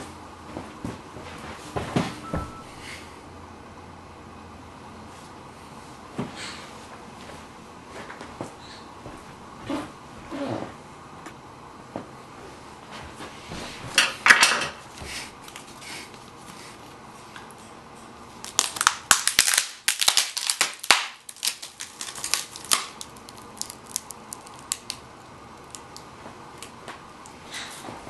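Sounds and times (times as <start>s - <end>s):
packaging rustle: 18.4s - 25.0s
packaging crackling and crinkling: 18.4s - 26.8s.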